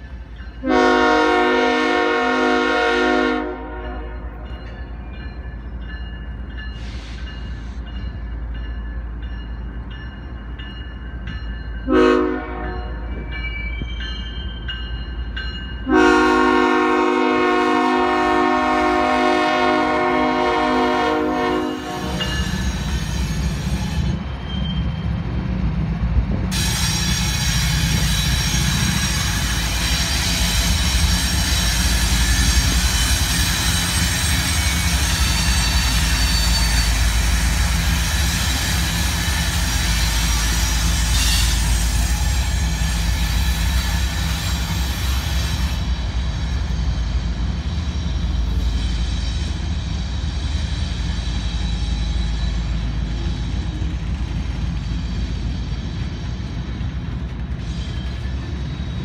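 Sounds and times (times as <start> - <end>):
diesel locomotive rumble: 0.0 - 59.0
train wheel and rail noise: 0.0 - 59.0
train horn blasts: 0.6 - 4.4, 11.9 - 13.2, 15.8 - 22.5.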